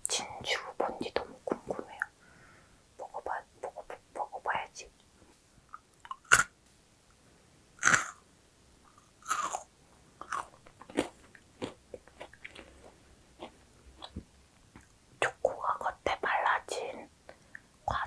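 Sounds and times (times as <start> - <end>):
crunchy biting and chewing: 5.7 - 6.5, 7.8 - 8.2, 8.9 - 14.1.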